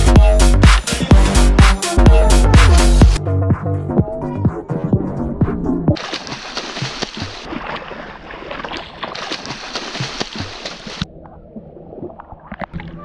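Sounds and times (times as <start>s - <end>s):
water splashing: 5.9s - 13.0s.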